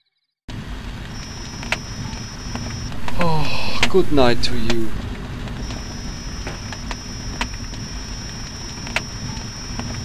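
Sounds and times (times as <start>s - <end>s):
steady high-pitched tone: 2.9s - 5.0s.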